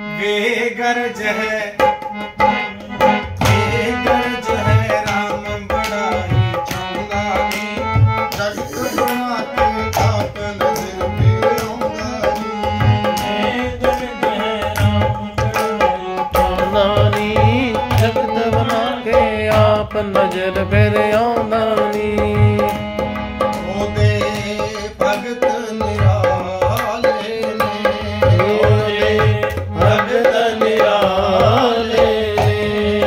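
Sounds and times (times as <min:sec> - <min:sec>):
harmonium melody: 0:00.0 - 0:33.0
hand drum rhythm: 0:01.8 - 0:33.0.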